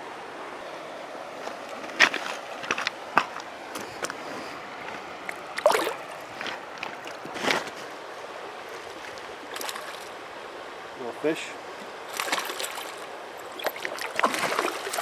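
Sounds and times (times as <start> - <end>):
shallow stream flowing: 0.0 - 15.0
water splashes: 4.8 - 7.4, 8.7 - 15.0.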